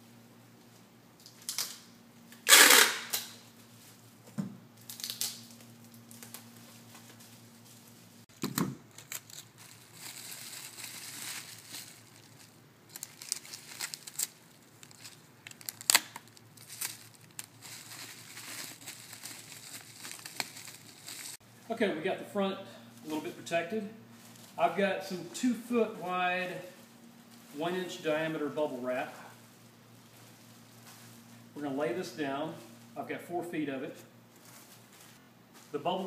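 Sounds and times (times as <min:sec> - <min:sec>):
packing tape ripped off dispenser: 0:01.4 - 0:03.4, 0:04.8 - 0:06.4, 0:08.4 - 0:21.4
bubble wrap crinkling: 0:04.8 - 0:21.4, 0:34.3 - 0:35.8.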